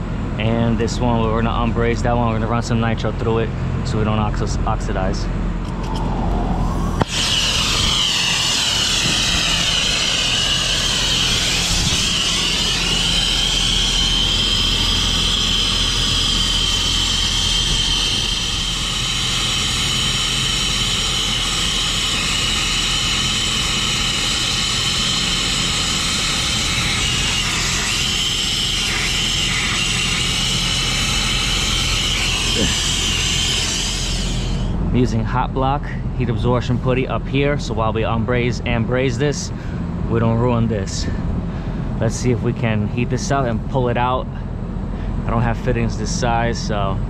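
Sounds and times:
low hum: 4.6s - 35.2s
high whistling tone: 5.6s - 34.8s
gas hissing through piping: 5.7s - 34.8s.

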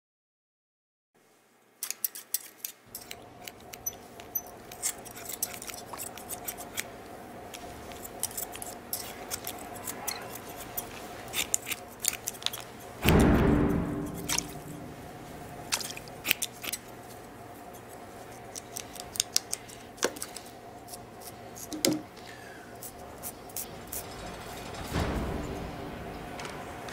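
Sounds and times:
scissors snipping: 1.8s - 6.9s, 7.5s - 13.2s, 14.0s - 14.7s, 15.7s - 16.9s, 17.7s - 21.9s
heavy boom: 13.0s - 16.1s, 24.7s - 26.9s
low hum: 13.0s - 16.4s, 23.8s - 26.9s.

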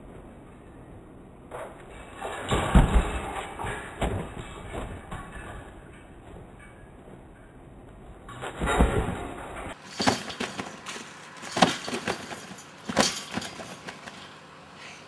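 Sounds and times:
trampoline rattling: 0.0s - 14.5s
trampoline landings on mat: 1.5s - 6.8s, 8.3s - 14.2s.

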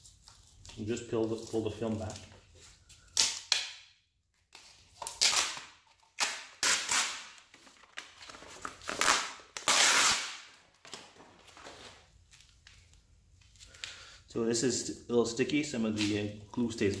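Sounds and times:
adhesive film peeling off plastic: 4.5s - 13.9s.

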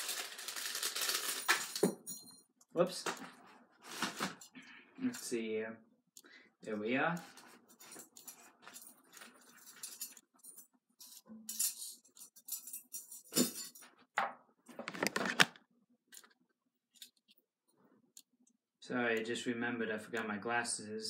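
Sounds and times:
clothing rustle: 2.9s - 4.6s
metal chain necklace jingling: 7.8s - 13.8s.

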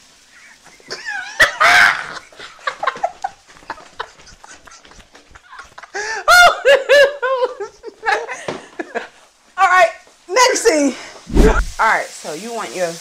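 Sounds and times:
man and woman laughing and shrieking: 0.9s - 3.0s, 5.5s - 8.4s.

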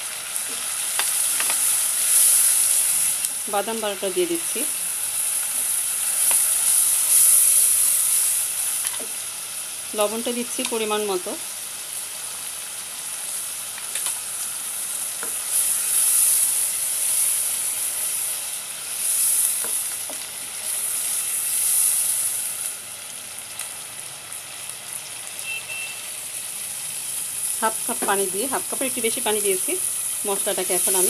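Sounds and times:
paste sizzling in a pot: 0.0s - 31.0s.

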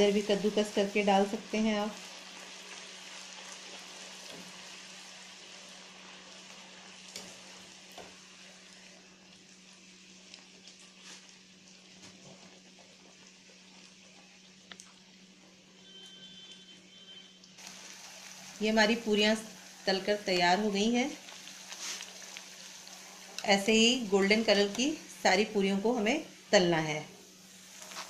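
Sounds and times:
food sizzling in hot oil: 0.0s - 28.0s.

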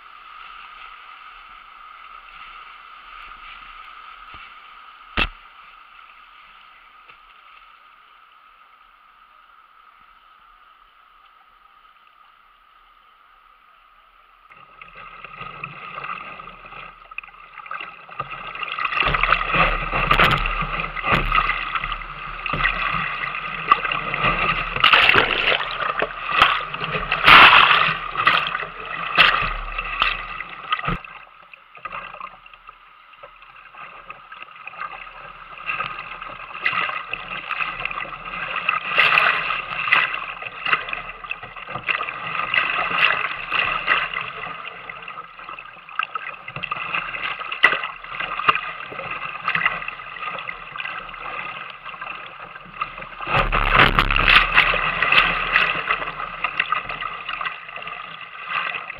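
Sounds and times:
sharp splashes: 17.6s - 31.1s, 53.2s - 58.9s.

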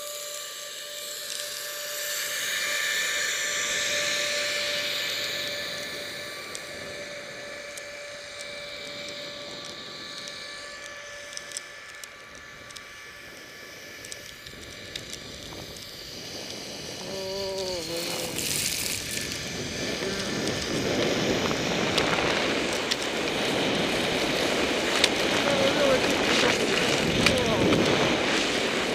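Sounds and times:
short wavering pitched sound: 0.0s - 13.7s
skis scraping over snow: 0.0s - 28.9s
wind noise: 1.9s - 28.9s.

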